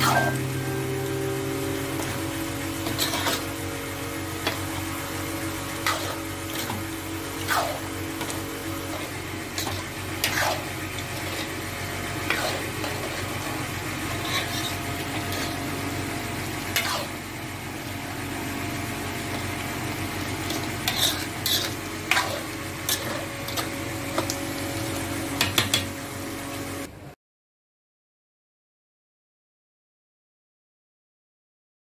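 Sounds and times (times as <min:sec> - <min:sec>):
curry sizzling: 0:00.0 - 0:26.9
metal ladle scraping a pan: 0:02.8 - 0:03.6, 0:05.7 - 0:11.6, 0:12.2 - 0:15.7, 0:16.7 - 0:17.2, 0:20.4 - 0:23.7.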